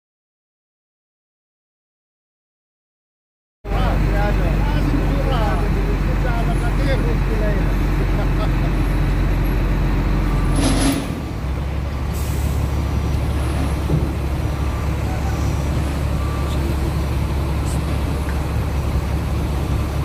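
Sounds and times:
diesel machinery rumbling: 0:03.7 - 0:20.0.

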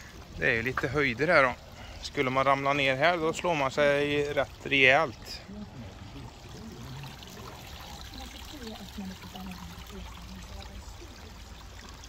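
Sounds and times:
water trickling over stones: 0:00.0 - 0:12.0
faint voices: 0:04.4 - 0:12.0.

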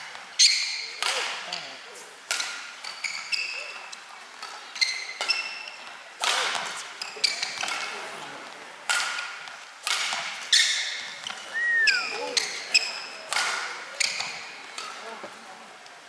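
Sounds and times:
shuttlecock hit with rackets: 0:01.0 - 0:01.6, 0:06.2 - 0:06.8, 0:08.8 - 0:10.4, 0:13.3 - 0:15.0.

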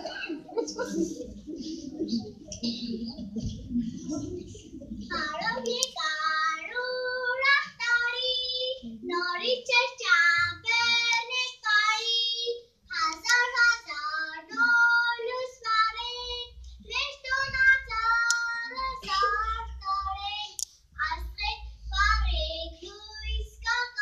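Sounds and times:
child singing: 0:05.0 - 0:24.0.

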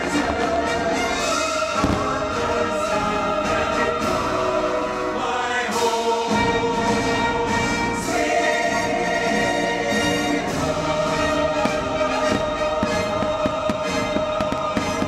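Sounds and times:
choir and orchestra music: 0:00.0 - 0:15.0
firework thump: 0:01.8 - 0:02.4.

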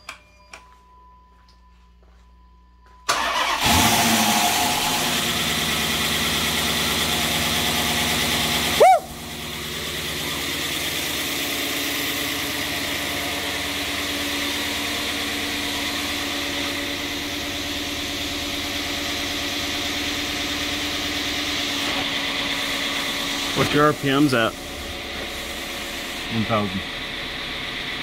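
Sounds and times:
car engine idling: 0:03.1 - 0:28.0.

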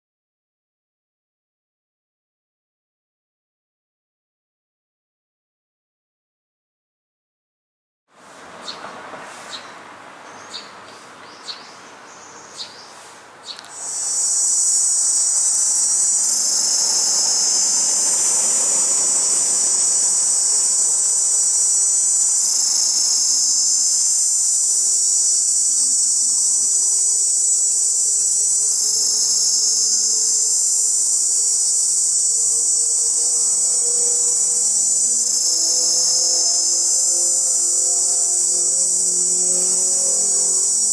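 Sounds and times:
cicada high-pitched buzz: 0:10.3 - 0:40.9
cicada clicks: 0:13.4 - 0:40.9.

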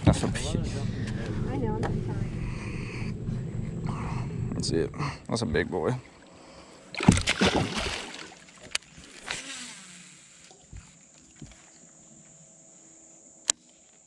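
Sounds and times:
water splashing beside a boat: 0:05.9 - 0:11.8.

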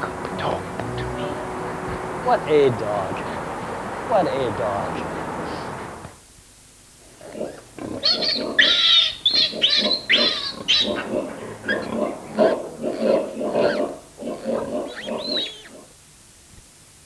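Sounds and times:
piglet grunting: 0:07.2 - 0:15.9
piglet squealing: 0:08.0 - 0:11.1, 0:11.7 - 0:15.8.

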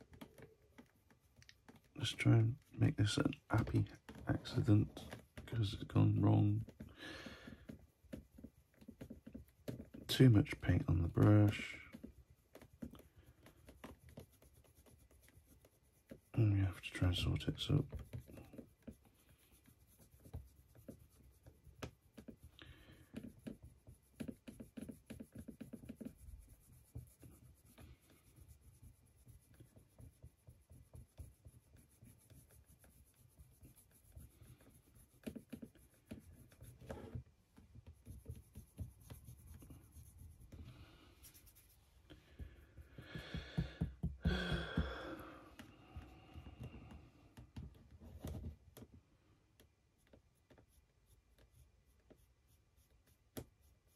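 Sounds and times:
small taps and rubs: 0:00.0 - 0:53.9
scratchy brush strokes: 0:00.2 - 0:43.4
soft bumps from hands: 0:42.2 - 0:48.6.

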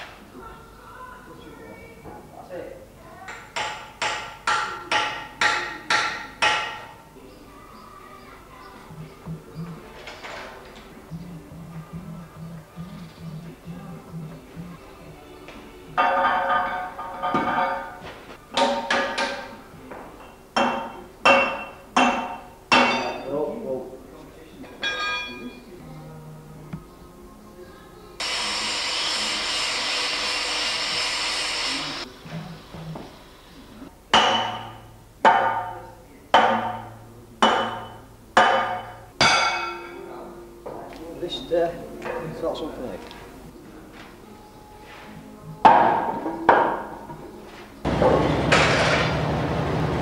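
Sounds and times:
hammer ringing on steel: 0:20.6 - 0:23.3, 0:36.4 - 0:40.0.

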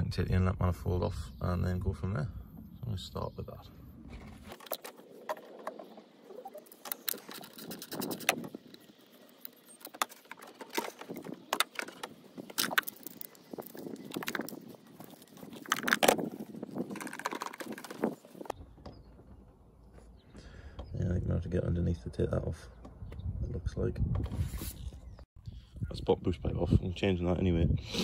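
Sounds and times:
clicks rattles and knocks of pipework: 0:09.8 - 0:16.3, 0:16.9 - 0:19.6.

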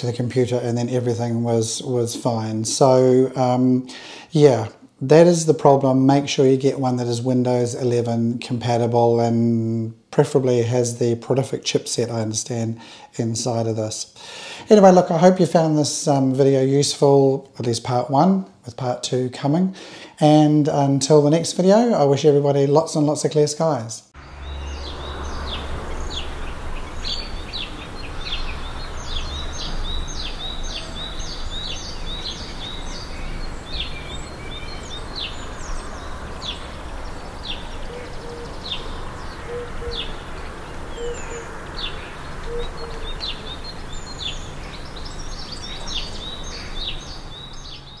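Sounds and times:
small birds chirping: 0:24.2 - 0:48.0.

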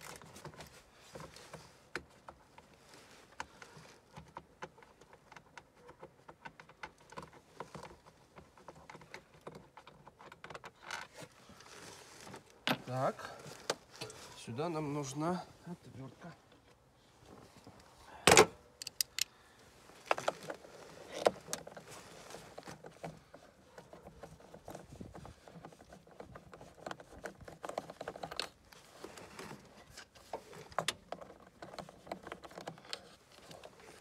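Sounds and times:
metallic clicks and taps: 0:18.8 - 0:19.3.

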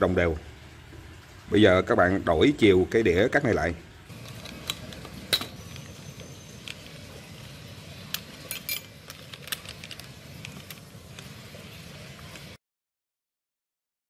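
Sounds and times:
metallic clicks and clinks: 0:04.1 - 0:07.0, 0:08.1 - 0:11.3.

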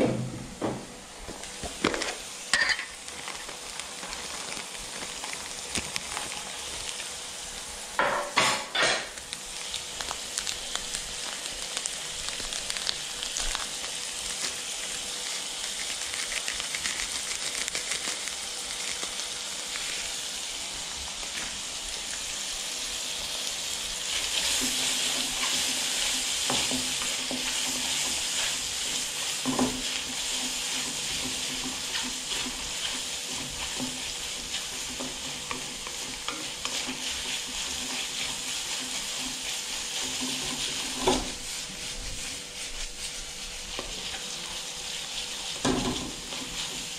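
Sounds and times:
food sizzling in a wok: 0:00.2 - 0:46.9.

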